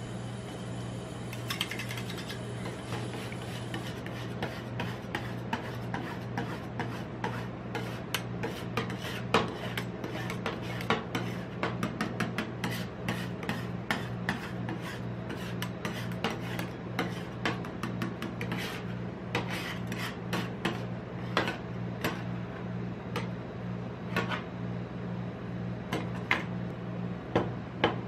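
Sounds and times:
steady low hum: 0.0s - 28.0s
spatulas tapping and scraping metal: 1.3s - 22.3s.

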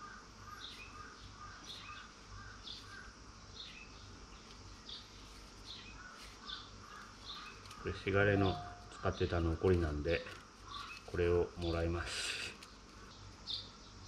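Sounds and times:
faint bird chirping: 0.0s - 14.0s
low steady hum: 0.0s - 14.0s.

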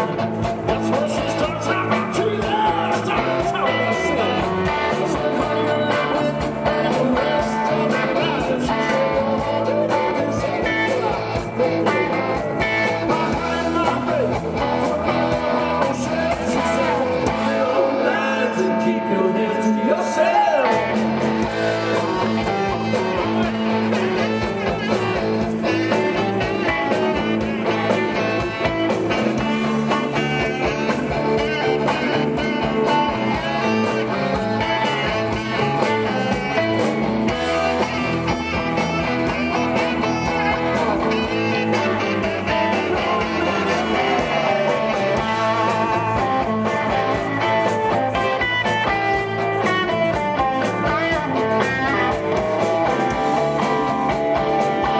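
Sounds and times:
bass: 0.0s - 54.9s
drums: 0.0s - 54.9s
electric guitar: 0.0s - 54.9s
saxophone: 21.4s - 54.9s.

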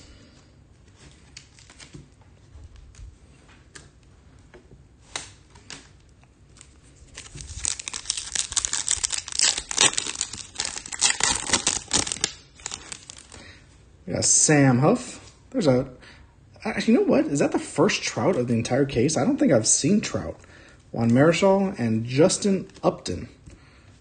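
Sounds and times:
foil wrapper tearing and crinkling: 6.6s - 13.4s.

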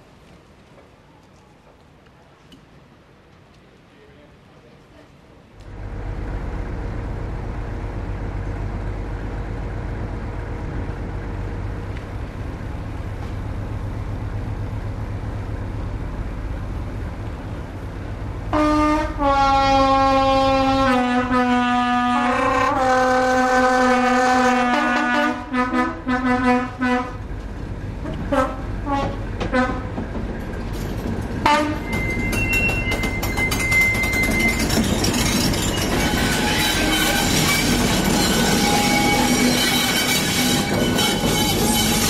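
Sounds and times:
diesel locomotive engine rumble: 0.0s - 42.0s
locomotive horn blasts: 18.5s - 27.2s, 28.3s - 29.9s, 31.4s - 32.0s, 36.1s - 42.0s.

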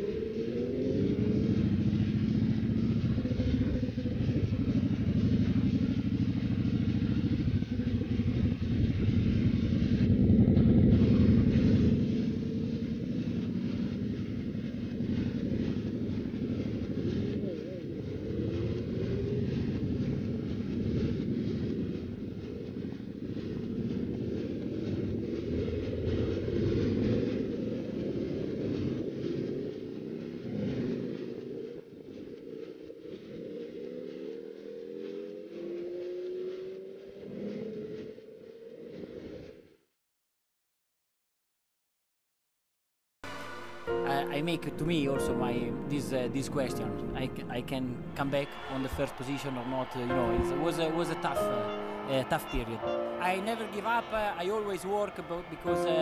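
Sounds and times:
motorcycle engine cruising: 0.0s - 39.6s
rising engine note: 43.2s - 56.0s.

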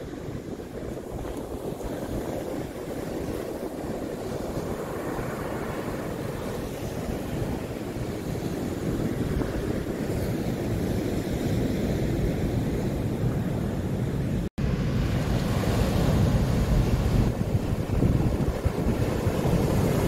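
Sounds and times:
surf breaking on beach: 0.0s - 20.0s
wind buffeting microphone: 0.0s - 20.0s.

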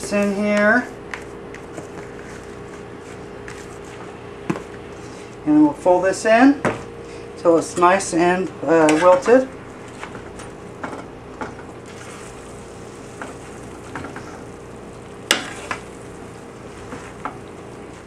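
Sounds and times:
curry sizzling in skillet: 11.7s - 18.0s.

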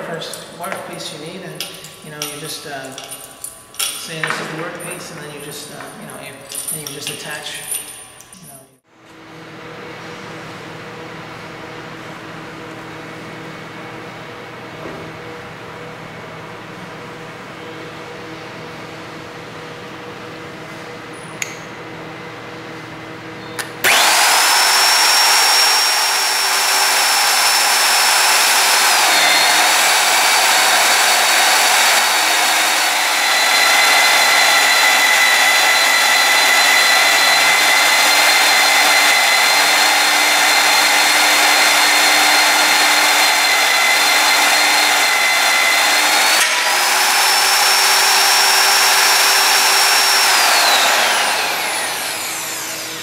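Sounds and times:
drill motor whine: 23.6s - 53.0s.

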